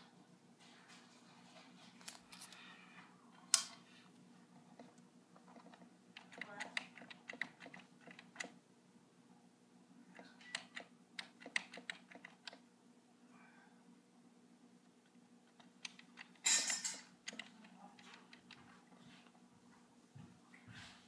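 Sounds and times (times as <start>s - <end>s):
steady low hum: 0.0s - 21.0s
computer keys clicking: 5.5s - 8.5s, 10.4s - 12.6s, 17.2s - 18.6s.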